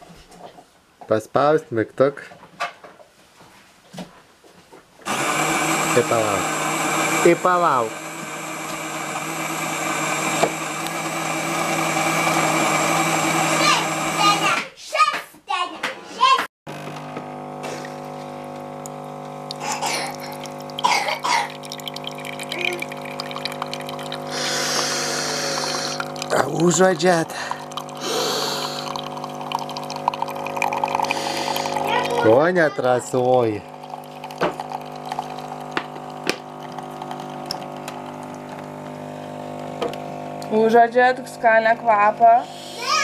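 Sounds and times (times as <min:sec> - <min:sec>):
coffee machine humming: 0:05.0 - 0:14.6, 0:16.7 - 0:43.0
coffee trickling into mug: 0:17.7 - 0:38.8.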